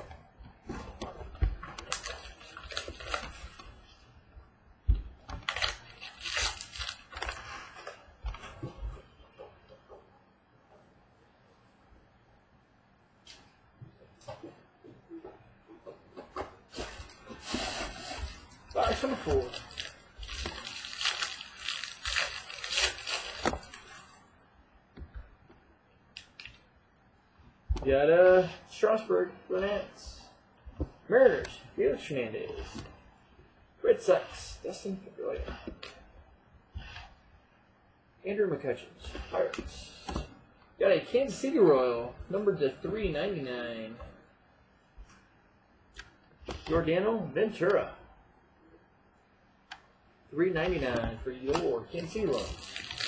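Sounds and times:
foil crinkling and tearing: 1.9 - 3.5, 5.4 - 8.0, 16.8 - 24.2, 51.9 - 53.0.

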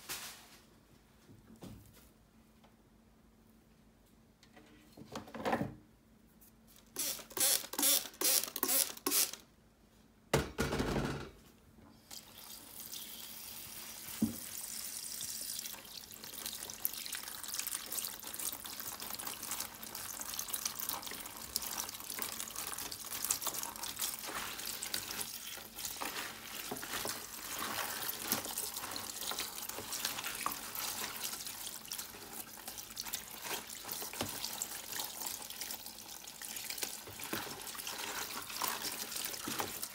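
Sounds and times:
knock: 10.3 - 11.3
hand rinsing leaves: 12.2 - 39.9
tap water running into bowl: 14.1 - 39.9.

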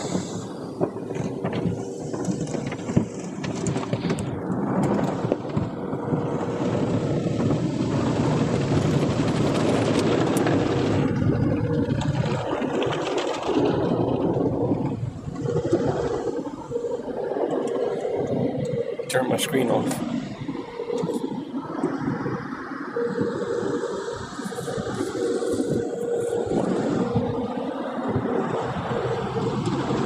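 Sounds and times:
steady hum: 14.2 - 29.6.

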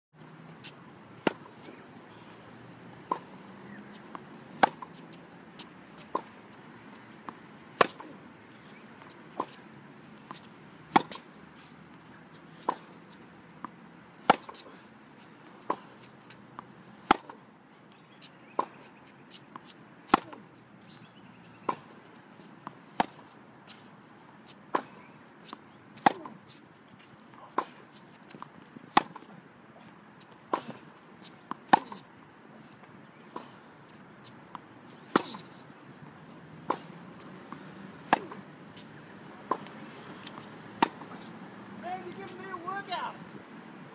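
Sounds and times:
racket hitting tennis ball: 0.6 - 1.8, 3.0 - 12.0, 12.6 - 14.7, 15.6 - 17.4, 18.5 - 20.6, 21.6 - 23.9, 24.5 - 26.6, 27.4 - 29.4, 30.2 - 32.1, 32.7 - 43.1
tennis ball bouncing: 0.6 - 2.2, 3.0 - 14.6, 15.5 - 17.4, 18.2 - 20.6, 21.6 - 43.1.

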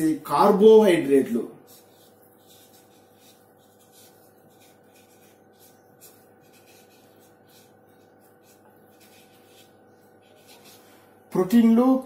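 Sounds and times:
faint steady hum: 0.0 - 12.0
marker pen scratching on whiteboard: 1.6 - 11.0.

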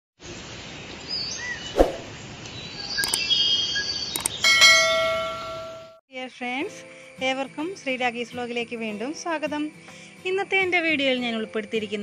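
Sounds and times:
bird chirps: 1.1 - 5.7
bell chime: 4.4 - 6.0.

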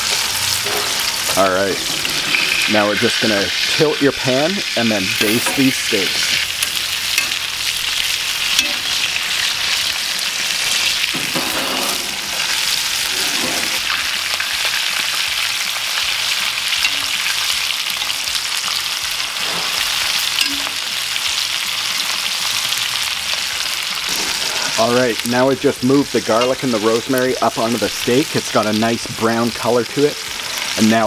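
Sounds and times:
butter sizzling in skillets: 0.0 - 31.0
spoon scraping pans: 0.6 - 3.8, 5.1 - 7.6.

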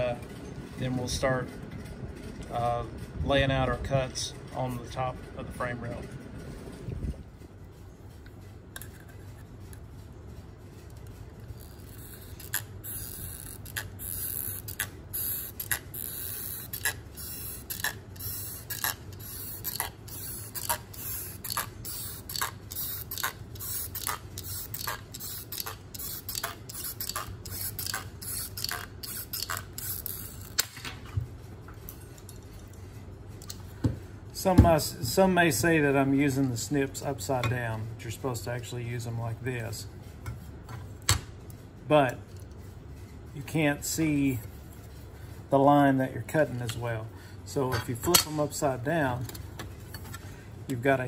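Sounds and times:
tin snips cutting sheet metal: 12.0 - 30.8.

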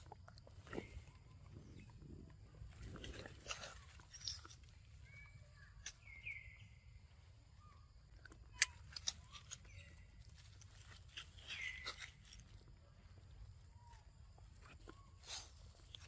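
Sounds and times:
young monkeys squeaking: 8.5 - 12.5.

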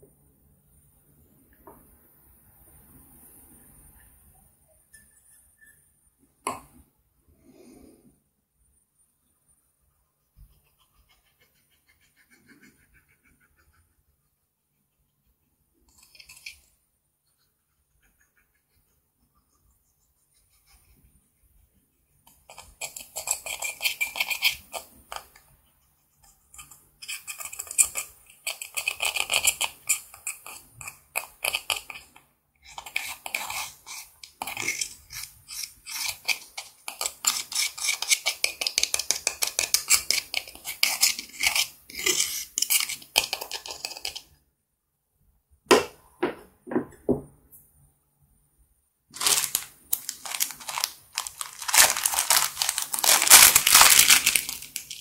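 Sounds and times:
metal tool scratching powder: 15.9 - 16.7, 22.3 - 25.4, 26.1 - 44.3
crumbs pattering into glass dish: 49.2 - 55.0
plastic zip bag crinkling: 49.2 - 55.0.

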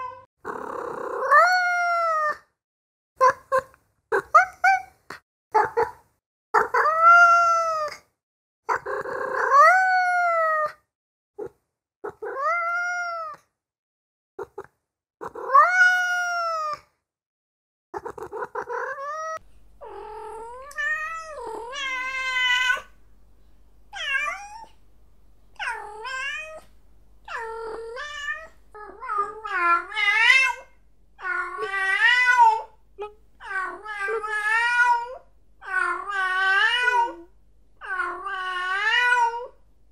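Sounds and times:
cat meowing: 12.1 - 13.4, 15.2 - 16.8, 18.0 - 23.0, 23.9 - 24.8, 25.6 - 26.7, 27.3 - 32.8, 33.4 - 39.6
faint low hum: 19.4 - 39.9.

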